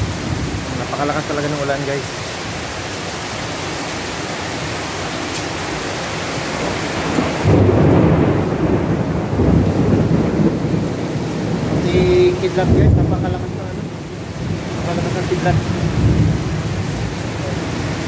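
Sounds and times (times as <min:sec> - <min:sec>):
thunder rumbling: 0:00.0 - 0:02.1, 0:06.4 - 0:18.0
heavy rain pouring: 0:00.0 - 0:18.0.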